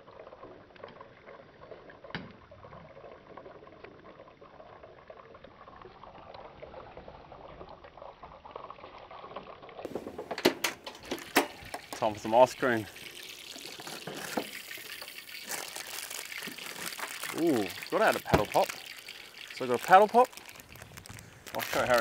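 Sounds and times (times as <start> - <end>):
deep frying sizzle: 10.8 - 22.0.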